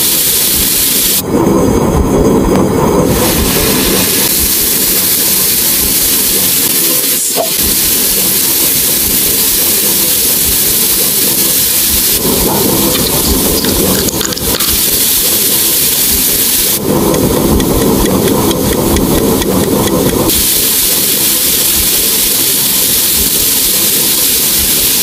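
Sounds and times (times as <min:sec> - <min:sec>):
meat sizzling on a grill: 0:03.2 - 0:16.8.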